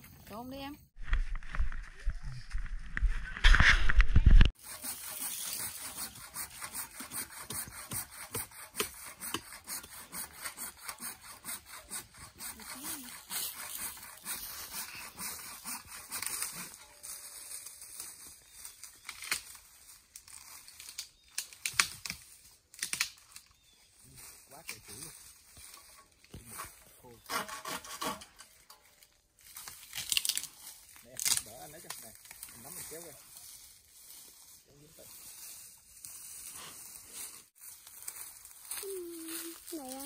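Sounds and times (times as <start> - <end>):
hand saw cutting branch: 4.6 - 17.2, 24.7 - 28.7.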